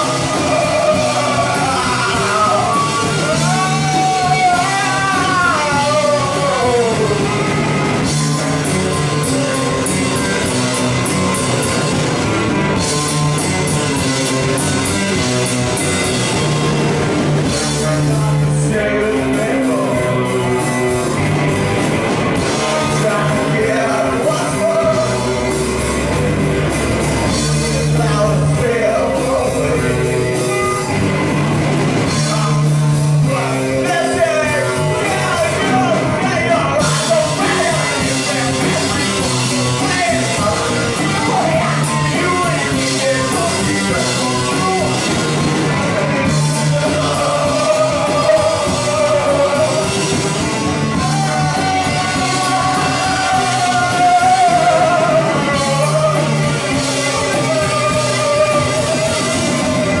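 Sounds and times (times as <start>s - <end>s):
person singing amplified: 0.0s - 10.5s, 22.4s - 26.2s, 27.3s - 30.9s, 32.0s - 60.0s
drum kit: 0.0s - 60.0s
electric bass: 0.0s - 60.0s
electric guitar: 0.0s - 60.0s.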